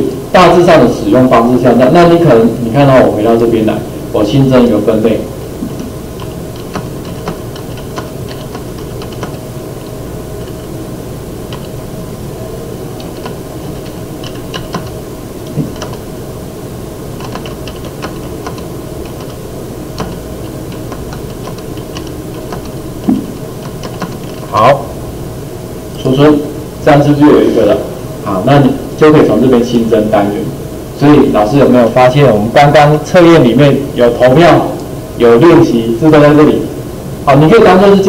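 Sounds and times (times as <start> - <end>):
low background hum: 0.0 - 38.0
typing on computer keyboard: 6.2 - 9.4, 11.5 - 11.8, 13.0 - 16.1, 17.2 - 24.5.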